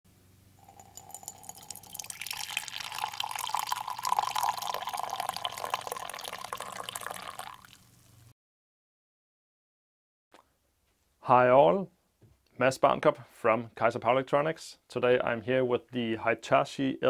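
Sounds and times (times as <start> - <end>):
liquid pouring into a mug: 0.6 - 8.0.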